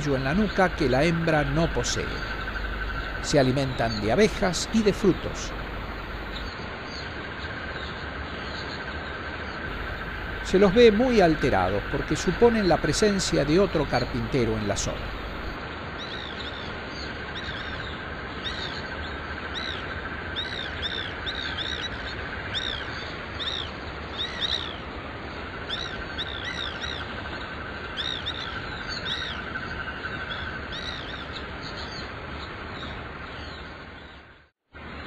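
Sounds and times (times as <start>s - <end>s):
woodpeckers calling: 0.0s - 6.5s, 9.7s - 15.6s
steady buzz: 0.1s - 6.5s, 9.7s - 15.6s.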